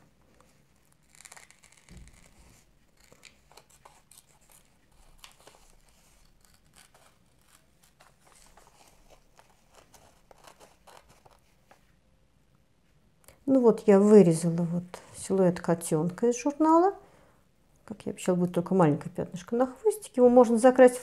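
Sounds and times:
scissors snipping paper: 1.1 - 11.4.

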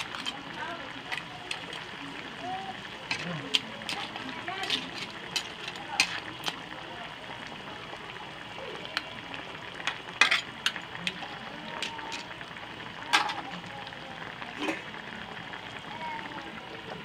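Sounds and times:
liquid bubbling and sizzling in a pan: 0.0 - 17.0.

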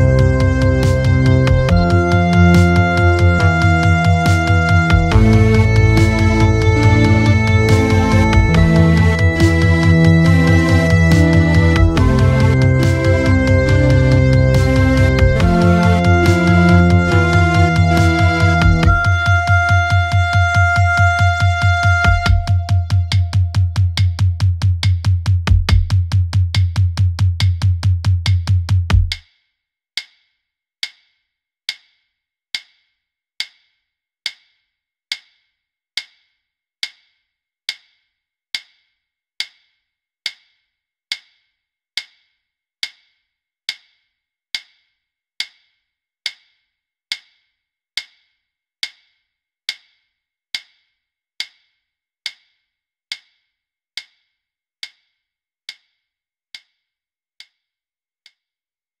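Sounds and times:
woodblock-like tick: 30.0 - 32.0, 32.6 - 58.5.

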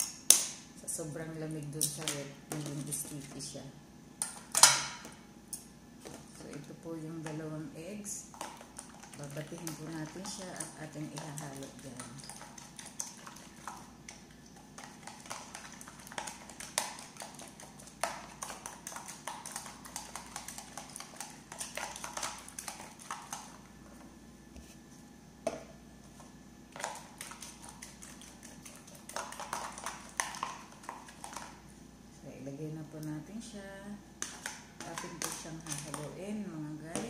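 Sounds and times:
fork beating eggs in container: 6.0 - 23.7, 26.7 - 31.6, 34.2 - 37.0.

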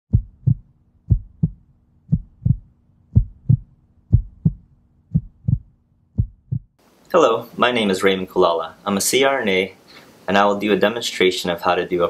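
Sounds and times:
heartbeat thumps: 0.1 - 6.8.

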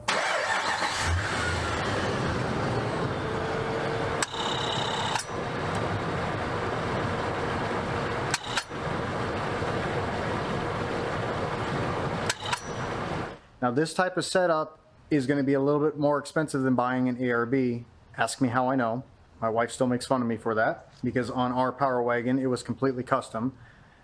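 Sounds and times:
air compressor whine: 0.0 - 13.4
truck engine idling: 0.0 - 13.4.

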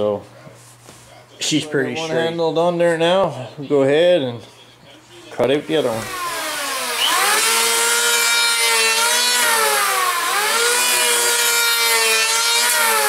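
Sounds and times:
electric hand planer cutting wood: 5.7 - 13.0.

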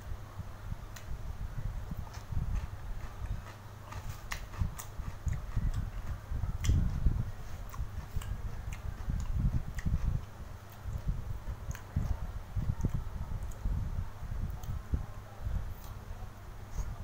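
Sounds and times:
man chewing and sipping: 1.9 - 13.7
wet mouth clicks and smacks: 7.7 - 10.0.

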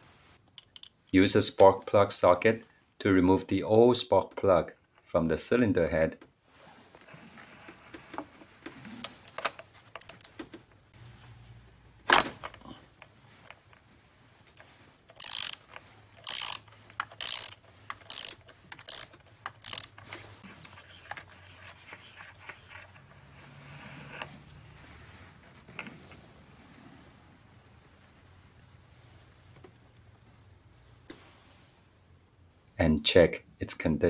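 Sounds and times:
ratchet clicking: 14.5 - 20.1.

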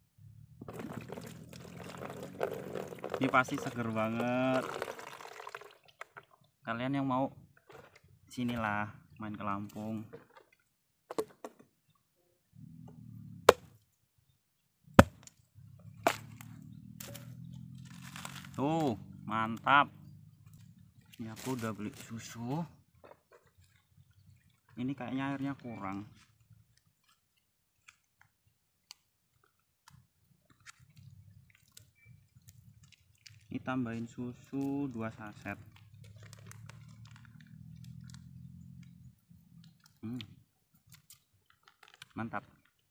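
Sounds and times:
machete chopping coconut: 15.0 - 15.2, 16.0 - 17.3
machete tapping coconut: 15.0 - 15.2
plastic sachet crinkling: 35.4 - 38.2, 40.8 - 42.9.

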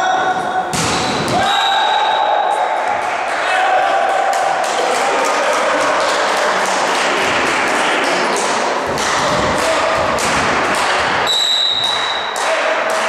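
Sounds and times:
referee's whistle: 1.4 - 2.6, 11.3 - 12.4.

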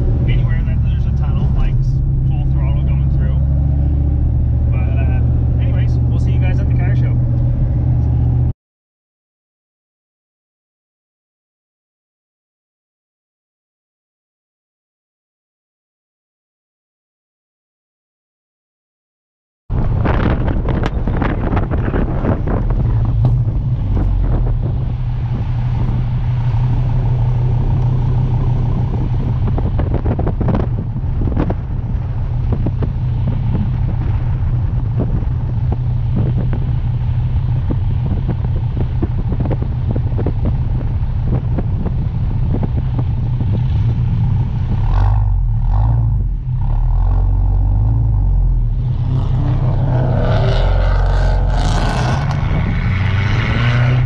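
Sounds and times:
car engine droning: 0.0 - 8.5, 19.7 - 54.0
road and wind noise: 0.0 - 8.5, 19.7 - 54.0.

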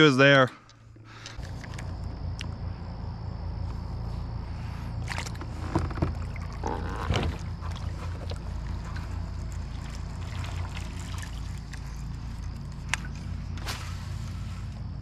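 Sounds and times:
steady low rumble: 0.6 - 15.0
water lapping around kayak hull: 4.5 - 14.8.

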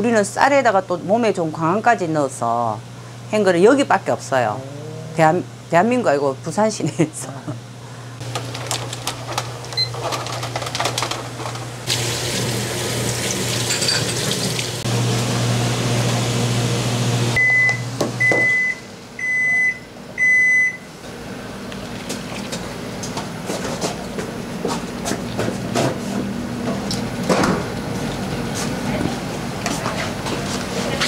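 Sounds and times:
steady low hum: 0.0 - 9.8
running water: 11.9 - 14.8
dishes clattering: 13.6 - 14.4.

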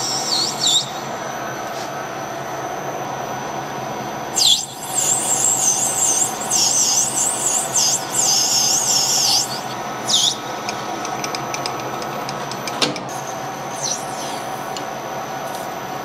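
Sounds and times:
cutting tool squealing: 0.0 - 1.1, 4.4 - 10.5, 13.7 - 14.7.

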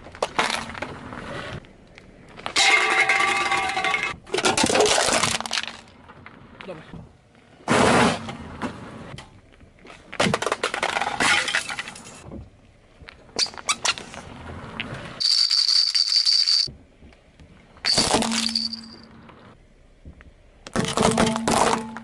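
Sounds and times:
objects crunching under car tyre: 0.0 - 6.6, 20.2 - 22.0.

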